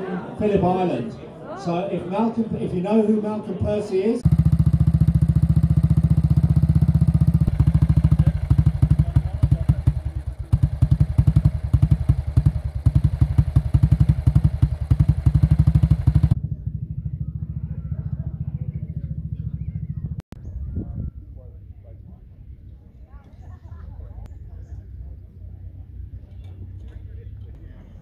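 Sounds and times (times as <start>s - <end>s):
motorcycle engine running: 4.2s - 20.7s.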